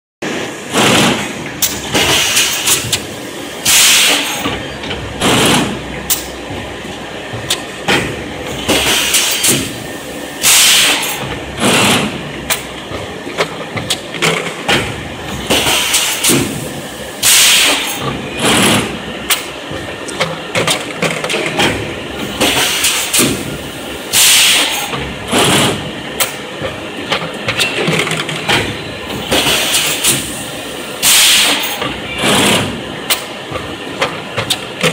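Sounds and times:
constant machine noise: 0.2s - 34.9s
pneumatic actuators clacking: 0.7s - 34.9s
compressed air hiss bursts: 3.6s - 4.2s, 10.4s - 11.0s, 17.2s - 17.9s, 24.1s - 24.7s, 31.0s - 31.6s.

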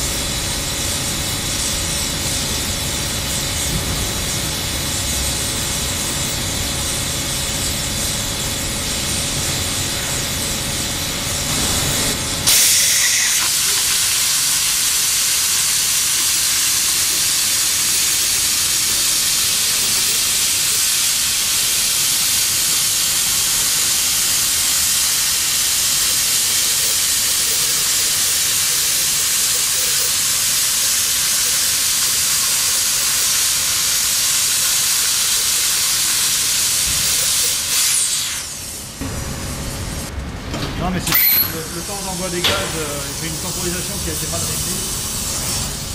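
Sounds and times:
plasma torch hissing: 0.0s - 40.1s, 41.1s - 45.9s.

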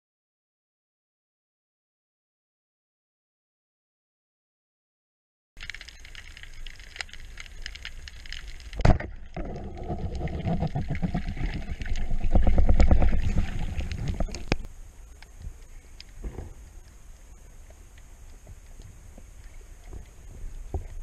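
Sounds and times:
speargun crack underwater: 5.6s - 14.7s
underwater clattering and rumbling: 5.6s - 14.7s, 18.4s - 21.0s.

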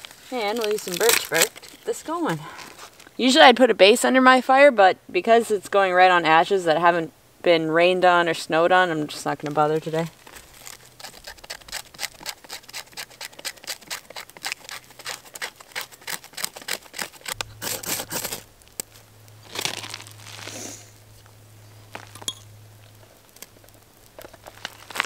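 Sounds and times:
knife scraping: 10.2s - 18.5s
fire steel hissing scrapes: 10.2s - 21.9s.

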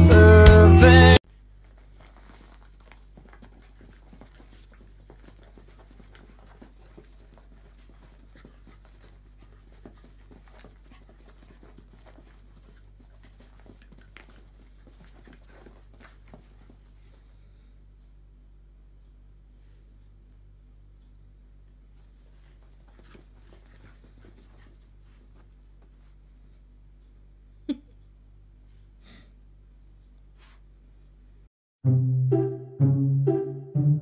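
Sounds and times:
low steady hum: 1.2s - 32.5s
puppy paws scuffing and clicking: 1.3s - 17.7s, 21.0s - 27.2s.

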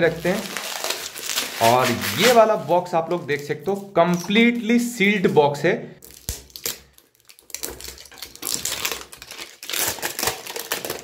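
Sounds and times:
plastic shrink-wrap tearing and crinkling: 0.0s - 3.8s, 6.0s - 11.0s.

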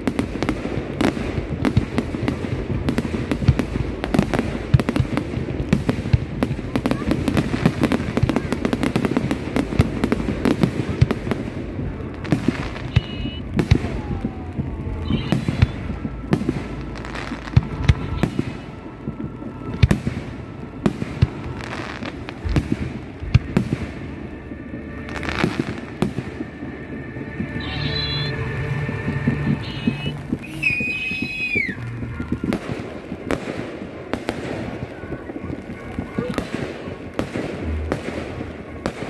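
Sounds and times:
fireworks crackling: 0.0s - 39.0s
fireworks shells bursting: 15.0s - 34.8s.

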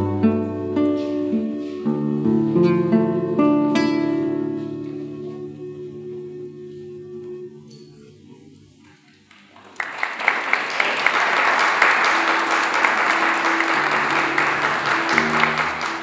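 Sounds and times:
music: 0.0s - 9.0s, 11.4s - 16.0s
audience applauding: 9.2s - 16.0s.

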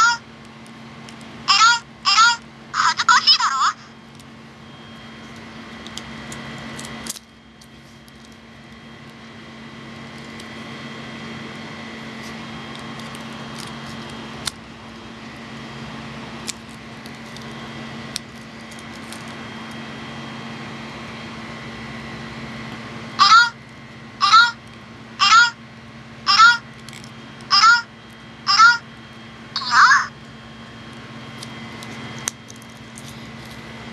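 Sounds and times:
steady hum: 0.0s - 33.9s.

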